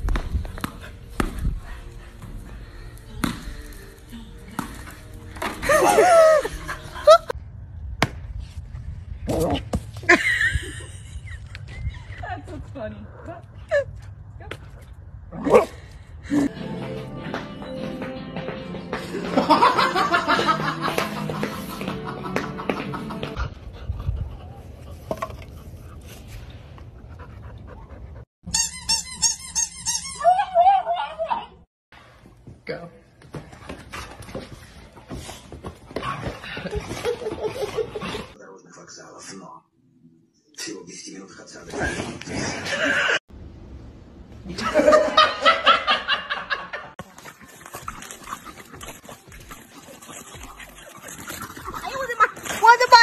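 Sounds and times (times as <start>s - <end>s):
person laughing: 5.6s - 7.3s, 10.0s - 12.4s, 19.1s - 23.4s
dog panting: 23.4s - 28.3s, 47.0s - 52.2s.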